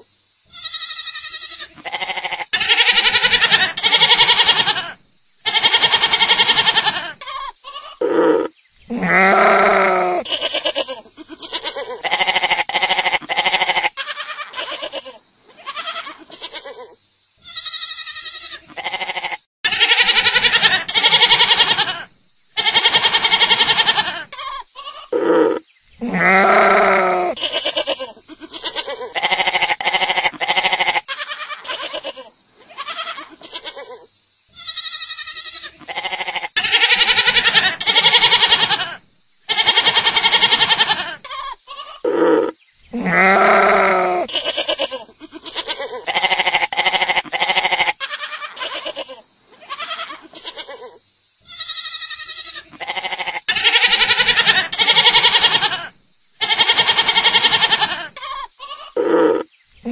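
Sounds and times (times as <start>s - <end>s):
goats bleating: 0.5s - 16.7s, 17.4s - 34.0s, 34.6s - 50.9s, 51.5s - 59.9s.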